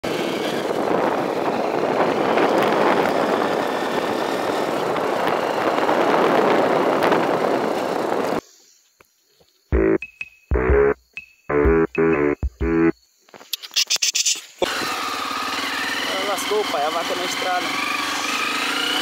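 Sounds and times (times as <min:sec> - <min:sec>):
vehicle road and wind noise: 0:00.0 - 0:08.4, 0:14.6 - 0:19.0.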